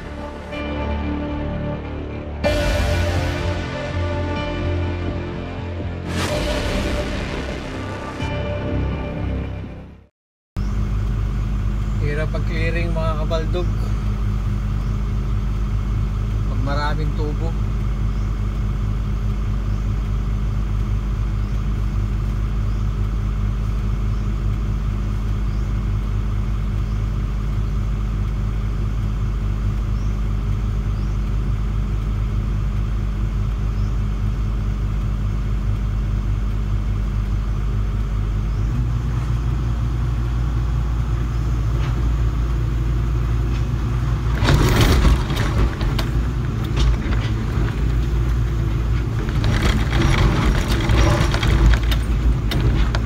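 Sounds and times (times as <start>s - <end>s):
excavator diesel engine: 0.0s - 10.0s, 10.6s - 53.0s
loud crackling and knocking: 6.0s - 8.5s, 43.8s - 53.0s.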